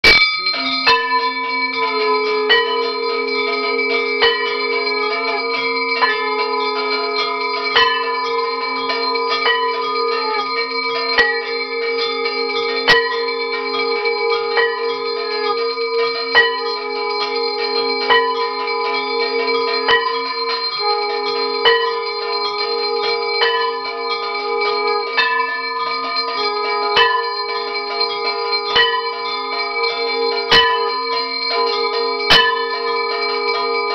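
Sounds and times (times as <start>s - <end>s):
bells ringing: 0.0s - 33.9s
sharp bell strike: 0.0s - 33.9s.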